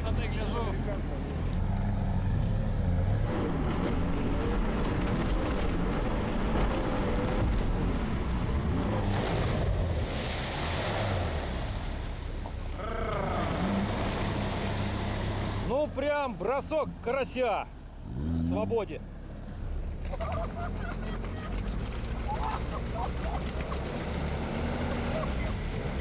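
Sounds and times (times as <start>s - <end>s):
vehicle engine running: 0.0s - 9.9s, 11.2s - 26.0s
water rushing and splashing: 3.3s - 17.5s, 19.5s - 26.0s.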